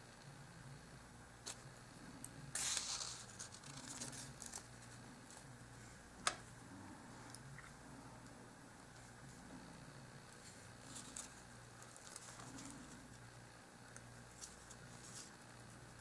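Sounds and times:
paper rustling: 2.5s - 5.4s.

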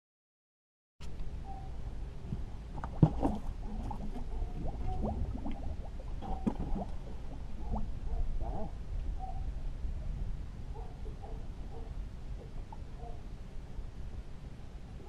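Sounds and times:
steady low rumble: 1.0s - 15.0s
water lapping against boat hull: 2.3s - 8.8s.

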